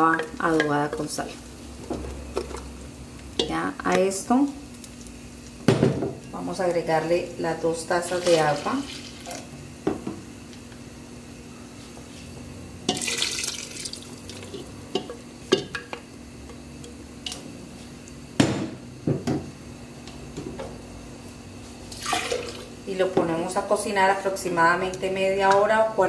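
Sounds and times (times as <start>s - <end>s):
water splashing into pot: 12.9s - 14.7s, 21.9s - 22.7s.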